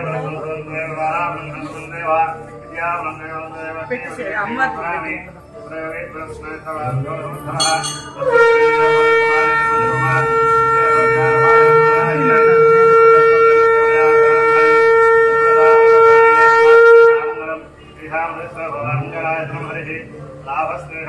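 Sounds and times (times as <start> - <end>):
conch shell blast: 7.6 - 17.2.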